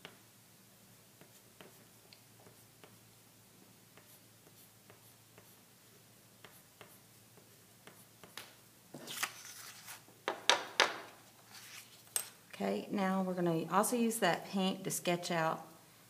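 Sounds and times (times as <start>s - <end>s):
chalk scratching on paper: 1.2s - 3.0s, 4.0s - 5.6s
paper rustling on desk: 9.0s - 10.1s, 11.4s - 12.2s.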